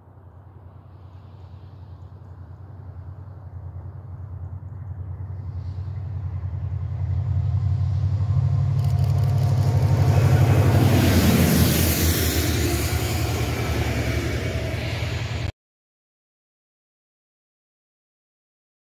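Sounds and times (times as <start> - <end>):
train wheel and rail noise: 0.0 - 15.5
locomotive engine pulsing: 2.3 - 15.5.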